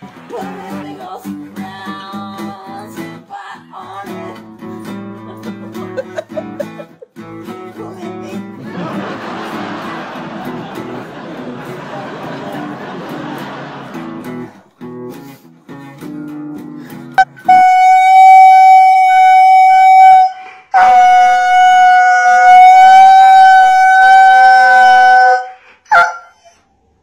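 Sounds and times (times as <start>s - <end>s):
acoustic guitar strumming: 3.9s - 23.0s
dog howling: 19.9s - 26.6s.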